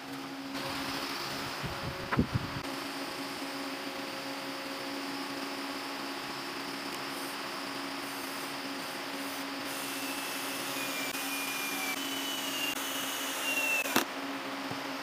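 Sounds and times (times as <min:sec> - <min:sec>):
cordless drill boring into wood: 0:09.8 - 0:14.1.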